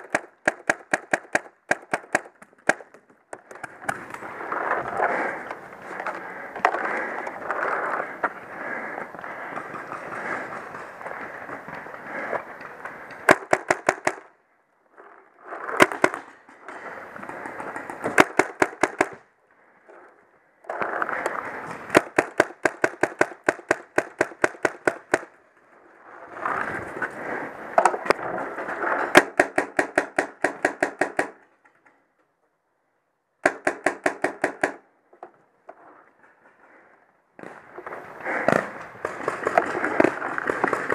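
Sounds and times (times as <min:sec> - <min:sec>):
paintball markers firing: 0:00.0 - 0:04.2, 0:13.1 - 0:14.3, 0:15.7 - 0:19.3, 0:21.1 - 0:25.4, 0:29.1 - 0:31.5, 0:33.4 - 0:34.8, 0:38.2 - 0:40.9.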